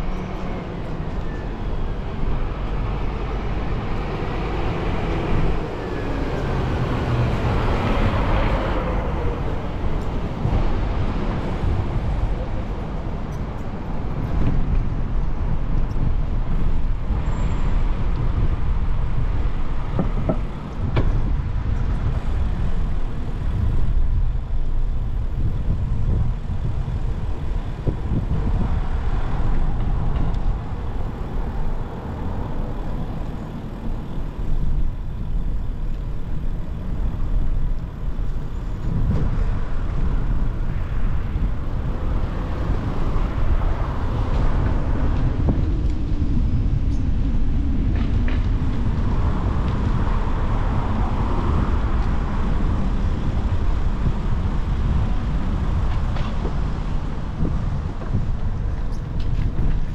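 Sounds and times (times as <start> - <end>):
cars and buses passing: 0.0 - 59.9.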